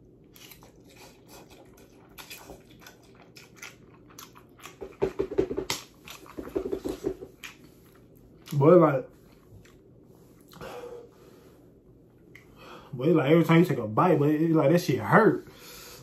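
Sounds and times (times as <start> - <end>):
man slurping and chewing noodles: 0.2 - 8.6.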